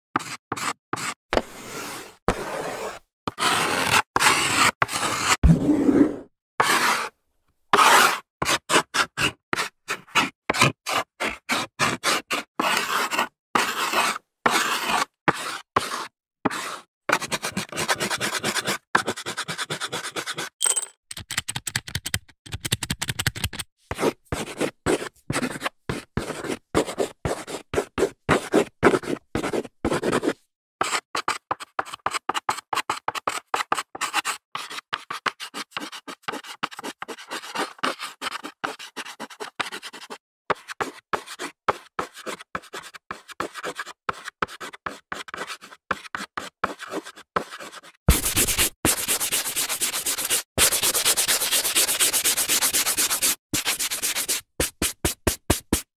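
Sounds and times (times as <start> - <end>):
chalk scratching on blackboard: 0.2 - 5.4, 6.0 - 20.6, 23.9 - 55.9.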